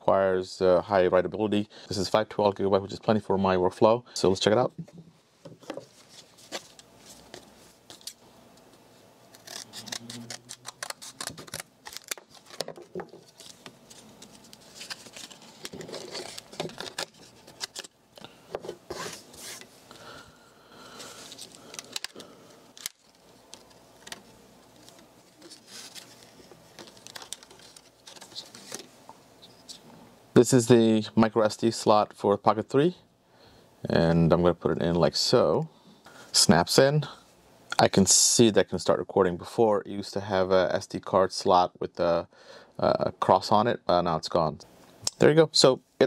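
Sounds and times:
packaging crackling: 9.4s - 18.3s, 21.1s - 28.9s.

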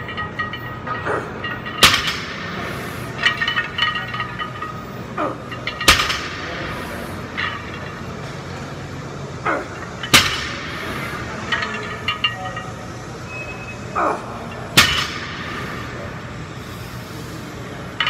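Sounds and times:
barbell clanking on floor: 0.0s - 8.0s
weight plates clinking: 0.0s - 13.4s.

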